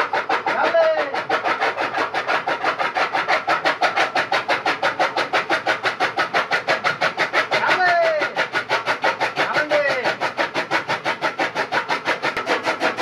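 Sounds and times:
chaff cutter chopping fodder: 0.0s - 13.0s.

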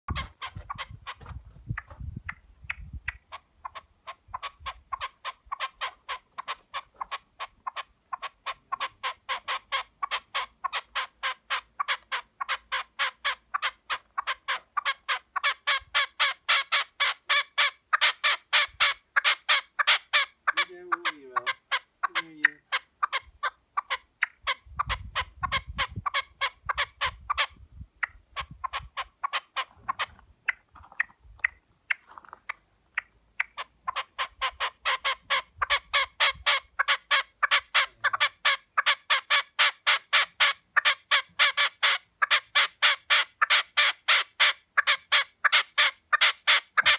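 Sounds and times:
partridge calling: 0.1s - 46.9s.

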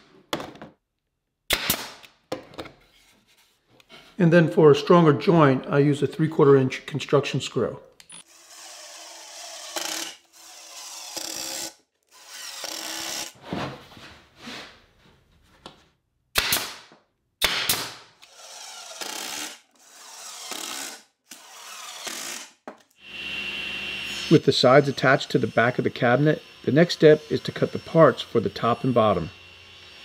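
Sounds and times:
impact driver driving screws: 8.1s - 13.4s, 17.5s - 22.9s.

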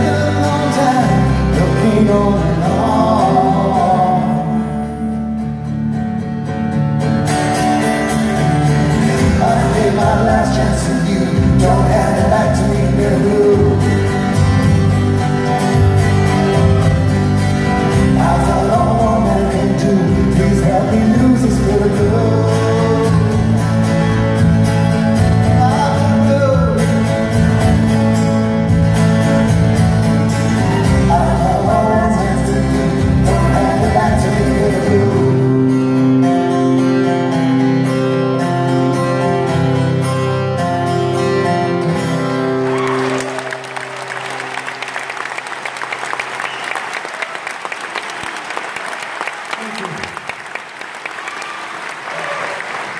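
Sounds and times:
man singing: 0.0s - 5.5s, 8.8s - 24.4s, 25.1s - 27.6s, 30.6s - 37.4s
strummed acoustic guitar: 0.0s - 44.0s.

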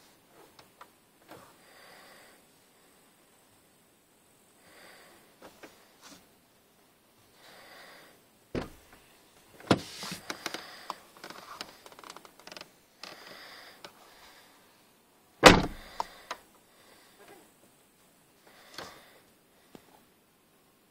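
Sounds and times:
door latch clicks and clunks: 8.6s - 9.0s, 15.4s - 16.1s.

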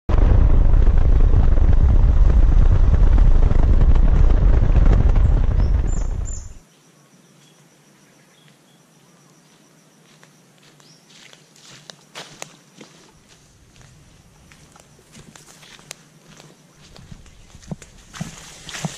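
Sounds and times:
wind rumble on microphone: 0.1s - 6.6s, 16.9s - 18.9s.

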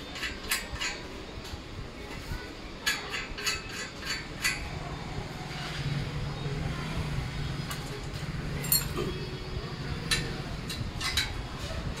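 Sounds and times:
spanner clinking on bolts: 0.2s - 1.0s, 2.8s - 4.7s, 8.6s - 9.1s, 10.1s - 11.4s.

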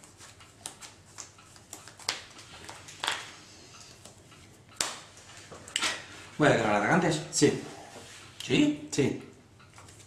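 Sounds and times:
cards swishing and tapping: 0.0s - 4.2s.

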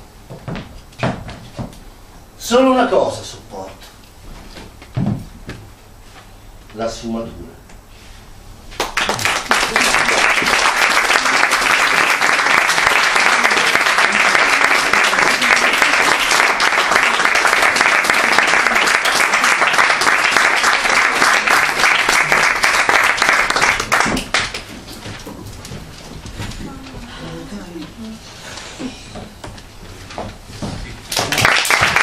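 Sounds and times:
audience applauding: 8.8s - 24.7s, 31.1s - 32.0s.

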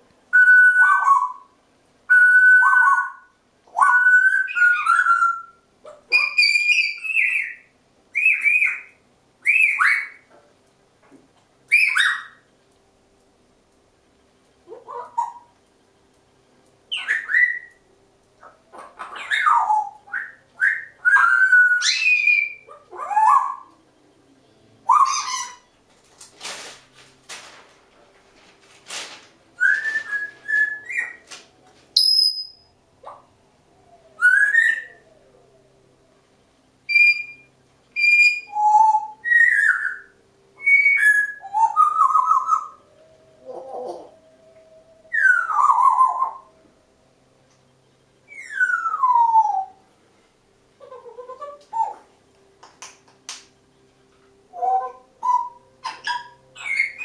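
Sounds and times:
parrots whistling and squeaking: 2.1s - 7.6s, 8.2s - 10.3s, 11.7s - 12.4s, 16.9s - 17.8s, 18.4s - 23.7s, 24.9s - 25.7s, 29.6s - 31.4s, 32.0s - 33.2s, 34.2s - 35.0s, 36.9s - 42.8s, 45.1s - 46.5s, 48.3s - 49.8s, 54.5s - 57.0s.

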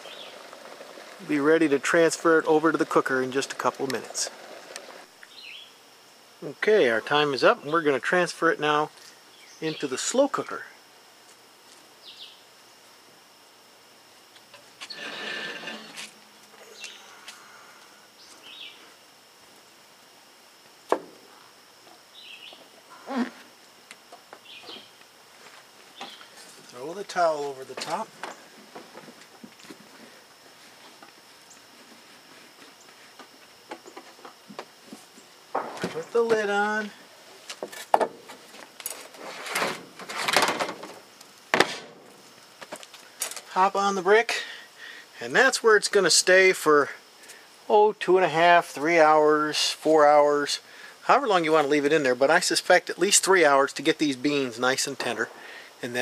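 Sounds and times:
bird chirping: 0.0s - 0.4s, 5.2s - 5.8s, 12.0s - 12.4s, 18.2s - 18.9s, 22.1s - 22.7s, 24.4s - 25.0s, 25.9s - 26.4s
scraping and rustling: 14.6s - 16.8s, 37.3s - 41.0s.

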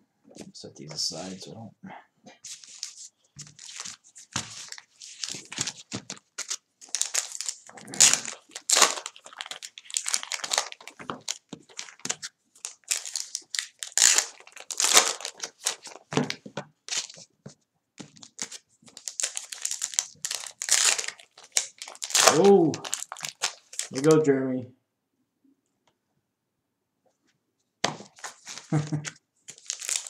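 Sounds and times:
card pack wrappers crinkling: 2.5s - 17.3s, 18.0s - 24.2s, 28.0s - 30.0s.

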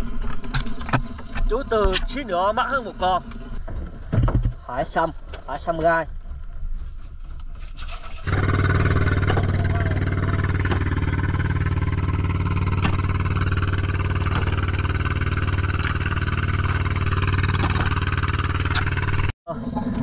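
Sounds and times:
boat engine droning: 0.0s - 3.9s, 8.2s - 20.0s.

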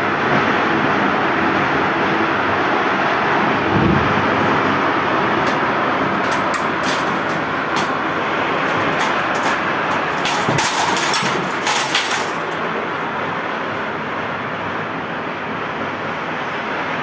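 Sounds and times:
tornado winds rushing: 0.9s - 14.4s
sharp clicks and knocks: 5.4s - 13.0s.

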